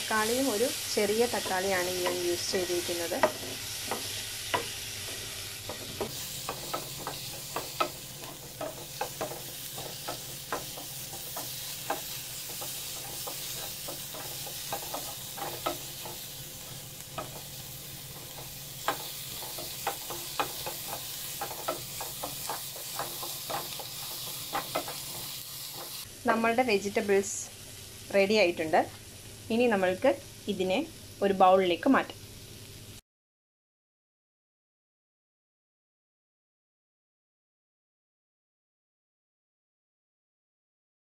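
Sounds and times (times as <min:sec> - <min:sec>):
vegetables sizzling in a pan: 0:00.0 - 0:33.0
spatula tapping and scraping pan: 0:01.2 - 0:26.0.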